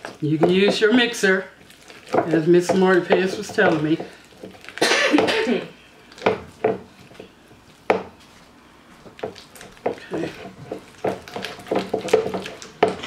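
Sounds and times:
spatula knocking on plastic bowl: 0.0s - 1.0s, 2.1s - 4.1s, 9.2s - 13.0s.

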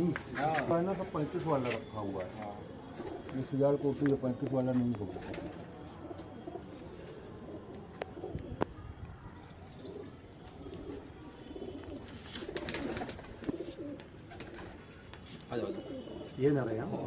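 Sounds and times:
pigeons cooing: 2.6s - 4.0s, 4.9s - 9.0s, 9.6s - 15.0s, 15.6s - 17.0s.

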